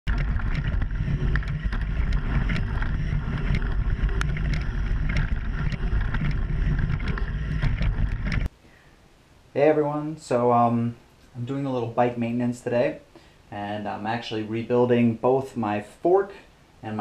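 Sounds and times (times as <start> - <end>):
bike tyres rumbling on dirt: 0.0 - 8.5
wind on microphone: 0.0 - 8.5
bike clicks and rattles: 0.1 - 8.5.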